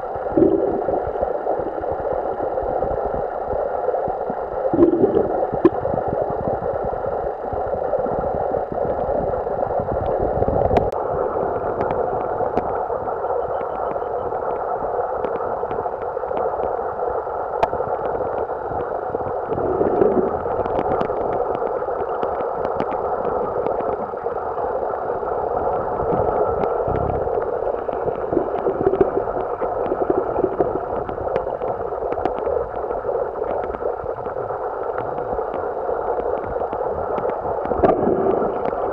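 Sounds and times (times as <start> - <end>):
muffled underwater noise: 0.0 - 38.9
faint clicks and ticks: 11.6 - 38.9.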